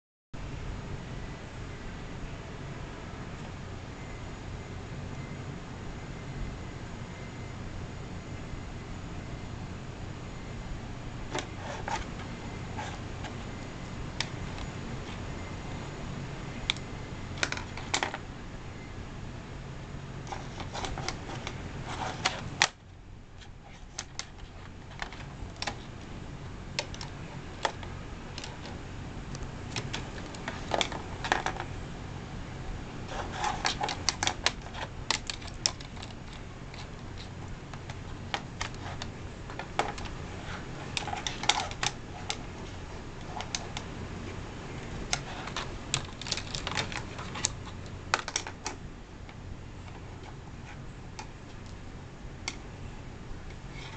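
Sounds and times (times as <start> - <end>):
steady low hum: 0.4 - 53.9.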